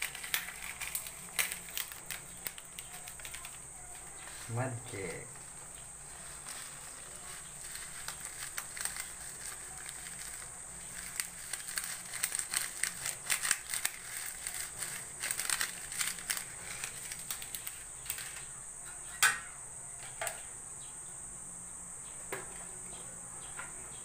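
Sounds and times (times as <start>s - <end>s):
granules shaken from crinkling sachet: 0.0s - 5.2s, 6.0s - 18.4s
crickets chirring: 0.0s - 24.0s.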